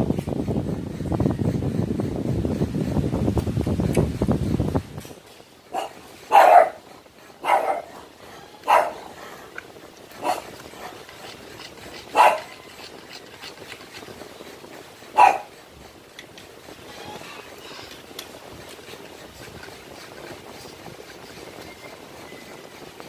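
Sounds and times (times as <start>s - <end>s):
dog barking: 5.7s - 6.8s, 7.4s - 8.0s, 8.6s - 9.1s, 10.2s - 10.5s, 12.1s - 12.5s, 15.1s - 15.5s.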